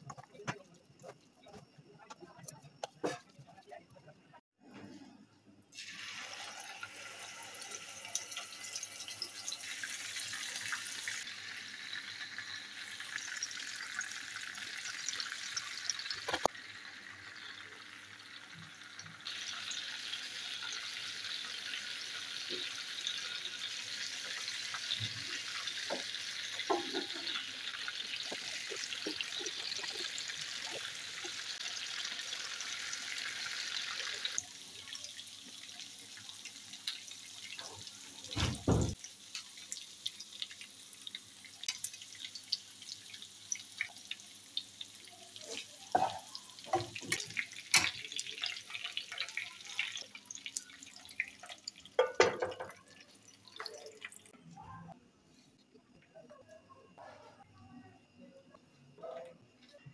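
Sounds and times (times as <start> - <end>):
burger patties sizzling in oil: 5.8 - 54.4
crackling and popping oil: 10.5 - 21.5, 22.1 - 54.4
utensils knocking against pan: 25.9 - 27.5.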